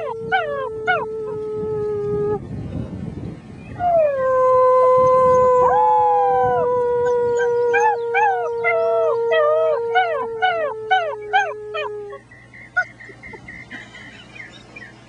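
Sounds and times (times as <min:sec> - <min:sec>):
puppies howling: 0:00.0 - 0:01.4, 0:03.8 - 0:13.1.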